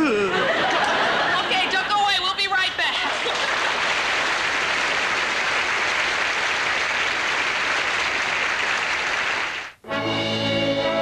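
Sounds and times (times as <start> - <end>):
audience applauding: 3.1 - 9.8.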